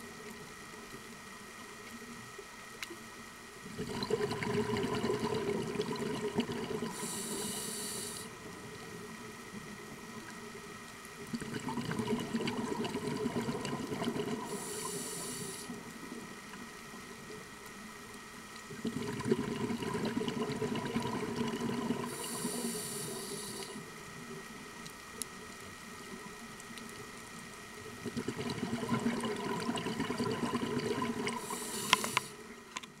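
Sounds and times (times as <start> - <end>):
scuba regulator bubbling exhalations: 3.7 - 8.3, 11.3 - 15.7, 18.7 - 23.8, 28.0 - 32.4
regulator inhalation hiss: 6.8 - 8.4, 14.4 - 15.8, 22.0 - 23.8, 31.4 - 32.5.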